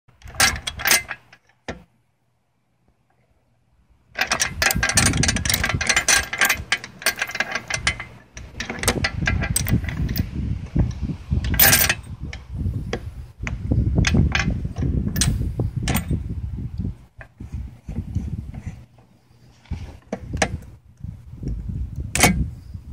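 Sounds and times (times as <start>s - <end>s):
metal clicks and clanks: 0.1s - 1.9s, 4.2s - 16.2s, 16.8s - 20.7s, 21.4s - 22.5s
chain rattling: 0.3s - 1.4s, 4.2s - 10.4s, 11.4s - 12.1s, 14.0s - 16.2s
handling noise: 4.2s - 16.3s.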